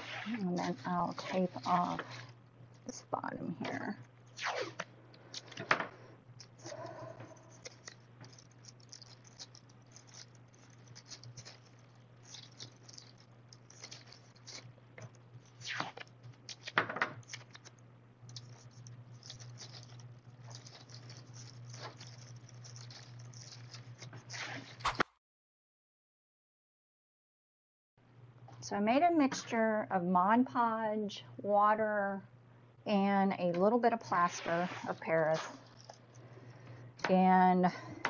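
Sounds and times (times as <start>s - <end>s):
steady low hum: 0.0s - 25.1s
plastic bag crinkling: 7.5s - 25.0s, 35.2s - 36.2s
tape pulled and pressed: 7.6s - 25.1s.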